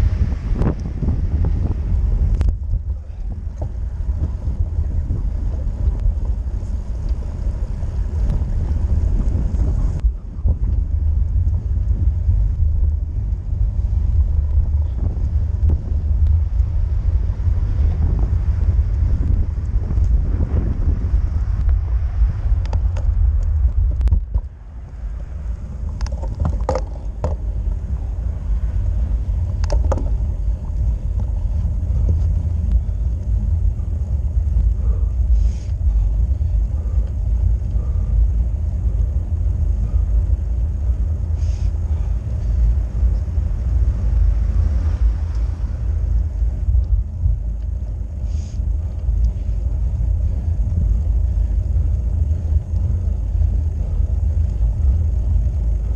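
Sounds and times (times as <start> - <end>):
wind buffeting microphone: 0.0 - 55.9
sharp clicks and knocks: 25.9 - 27.5, 29.5 - 30.2.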